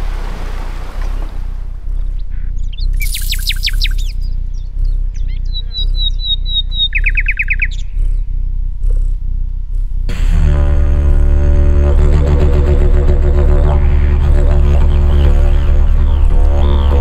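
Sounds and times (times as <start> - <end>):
low musical drone: 1.6 - 17.0
cartoon bird chirps and trills: 2.7 - 7.7.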